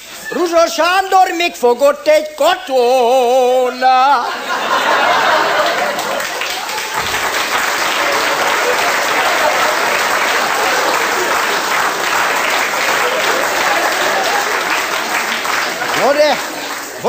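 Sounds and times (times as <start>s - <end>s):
audience applauding: 4.5s - 17.0s.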